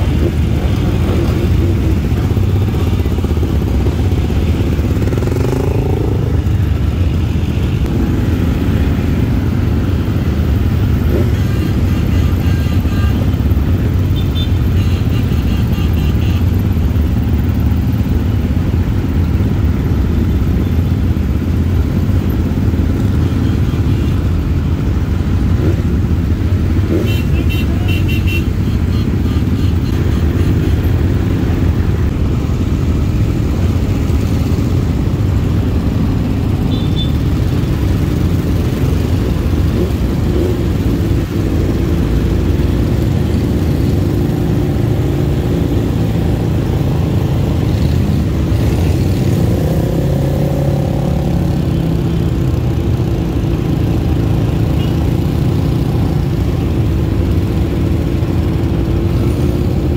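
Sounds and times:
engines revving: 0:00.0 - 0:07.2, 0:33.4 - 0:59.9
motorcycle engines droning: 0:00.0 - 0:59.9.

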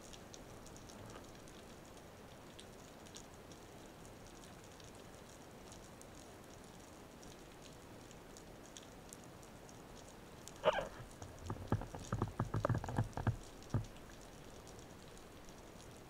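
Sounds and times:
underwater crackle of tiny clicks: 0:00.0 - 0:16.0
underwater knocks and clicks: 0:10.6 - 0:14.3.

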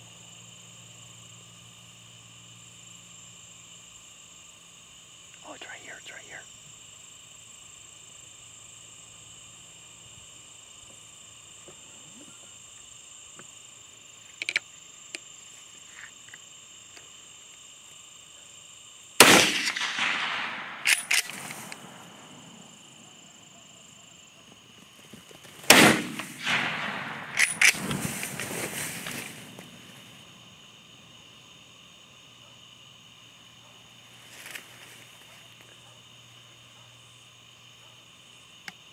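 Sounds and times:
rifle shots echoing: 0:19.2 - 0:22.6, 0:25.6 - 0:28.7.

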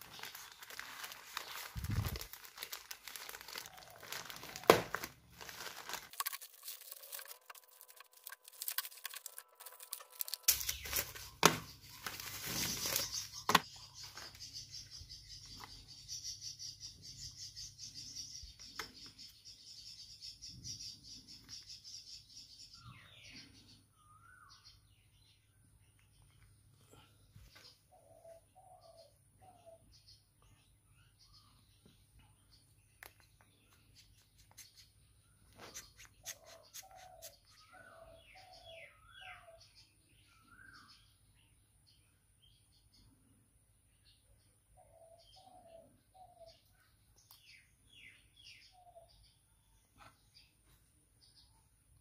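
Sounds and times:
plastic bag crinkling and tearing: 0:00.0 - 0:13.6
plastic packaging handled: 0:00.0 - 0:14.2.

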